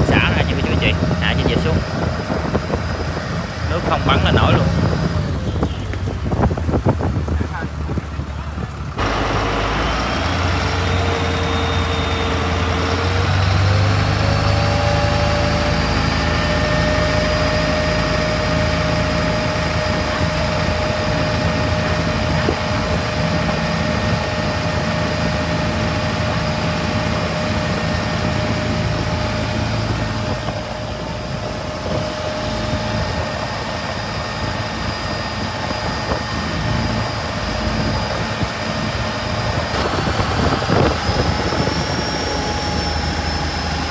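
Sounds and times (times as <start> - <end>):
boat diesel engine under throttle: 0.0 - 43.9
wind rushing: 28.8 - 43.1.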